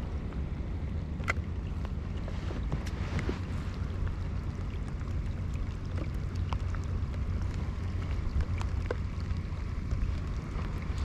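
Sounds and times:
water lapping against hull: 0.0s - 11.0s.

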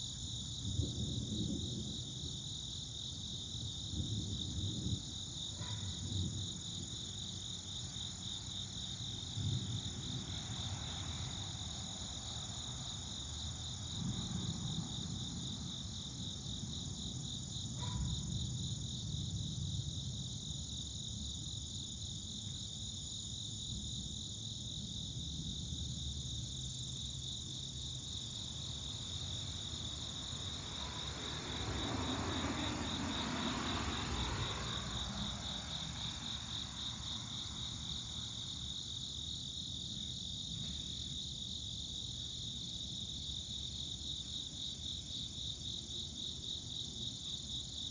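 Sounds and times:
pulsing insect chorus: 0.0s - 47.9s
distant thunder rumbling: 0.5s - 7.4s, 9.0s - 17.5s.

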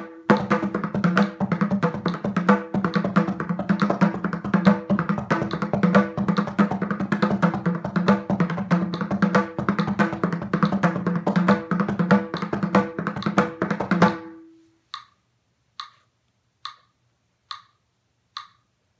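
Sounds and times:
mridangam drum strokes: 0.0s - 14.5s
steady ticking: 16.6s - 18.7s.

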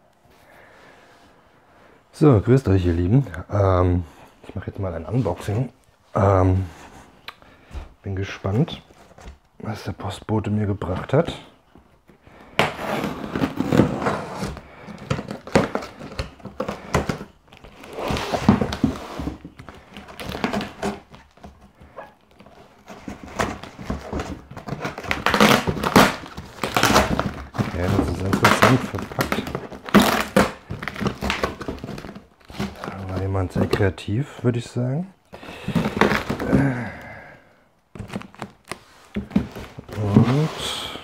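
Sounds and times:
cardboard flaps tearing: 12.6s - 33.8s, 35.4s - 36.8s
packing tape ripping: 24.7s - 33.0s.

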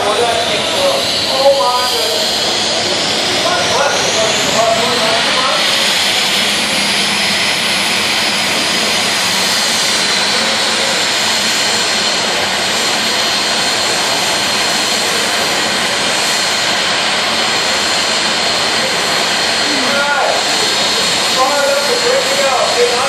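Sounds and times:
turbine engine idling: 0.0s - 23.0s.

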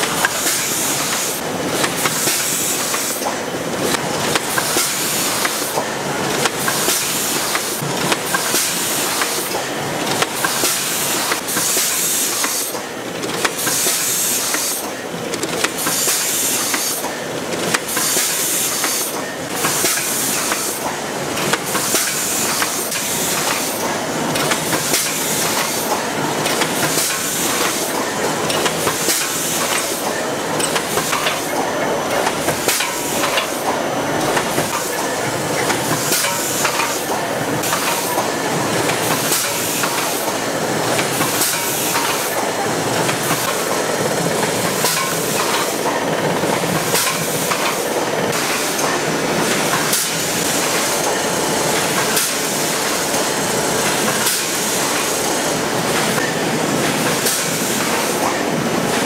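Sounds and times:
machine clatter: 0.0s - 59.0s
pneumatic hiss: 0.2s - 3.4s, 10.4s - 12.9s, 13.5s - 15.0s, 15.7s - 17.2s, 17.9s - 20.9s, 21.6s - 33.8s, 46.8s - 53.2s.

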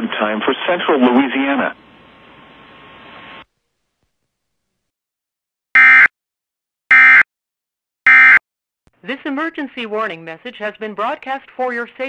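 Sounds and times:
faint radio hiss: 0.0s - 4.9s.

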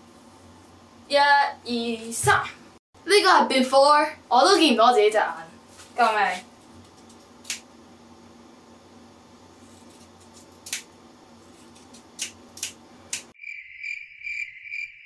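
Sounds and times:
scissors snipping hair: 6.8s - 7.6s, 9.7s - 10.9s, 11.5s - 13.3s
crickets chirping: 13.4s - 15.0s.

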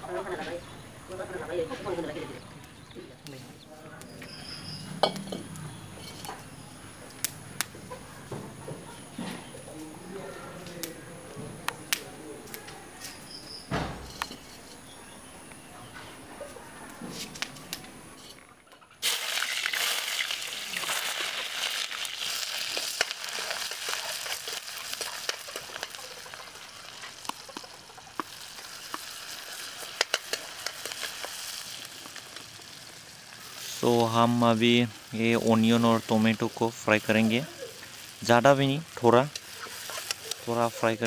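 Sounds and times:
food sizzling in wok: 19.0s - 41.0s
sharp oil crackles: 19.0s - 41.0s.

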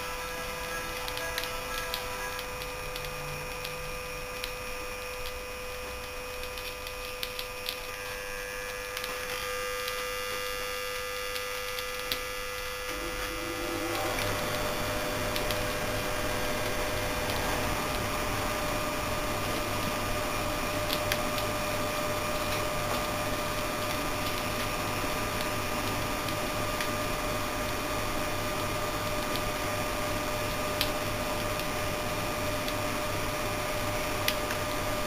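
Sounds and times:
compressor humming: 0.0s - 35.0s
clicks and ticks: 0.8s - 5.4s.

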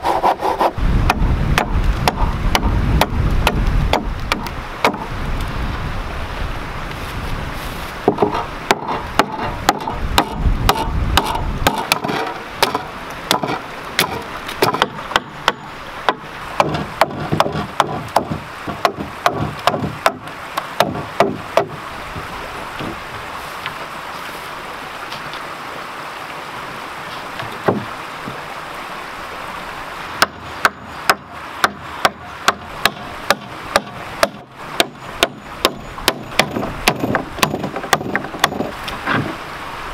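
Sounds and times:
stream rushing: 0.0s - 39.9s
hammering on wood: 1.1s - 5.1s, 8.1s - 23.0s, 30.2s - 38.8s.

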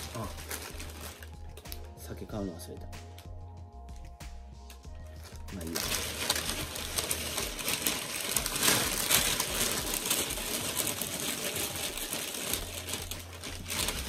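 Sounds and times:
packaging rustling and crinkling: 0.0s - 1.8s, 5.0s - 14.0s.

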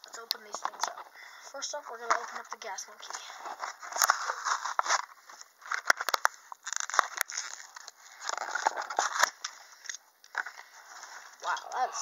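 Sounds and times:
plastic crackling: 0.0s - 1.2s, 1.9s - 11.7s
cardboard tearing: 3.4s - 9.5s.

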